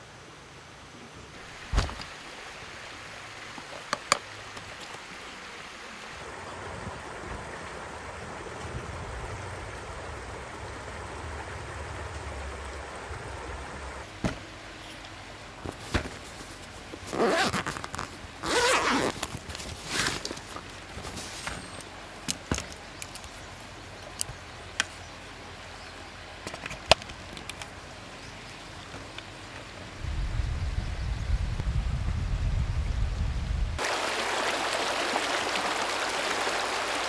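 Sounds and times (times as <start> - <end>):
river water rushing: 0.0 - 26.3, 33.8 - 37.0.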